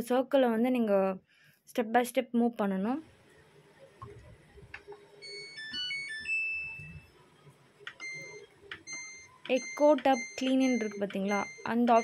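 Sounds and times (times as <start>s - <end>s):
washing machine power-on jingle: 5.1s - 12.0s
touch button beep: 8.0s - 12.0s.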